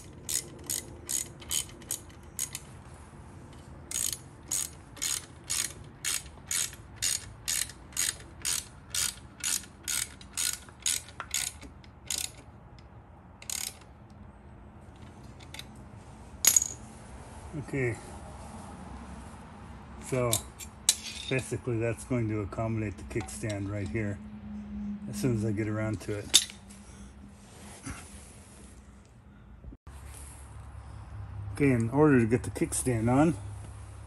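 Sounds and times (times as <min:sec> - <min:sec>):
ratchet wrench clicking: 0:00.0 - 0:02.7, 0:03.5 - 0:13.9, 0:16.4 - 0:16.8.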